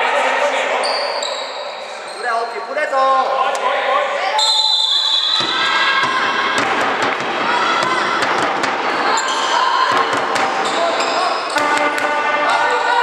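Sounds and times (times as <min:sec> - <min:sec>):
players shouting in hall: 0:03.2 - 0:13.0.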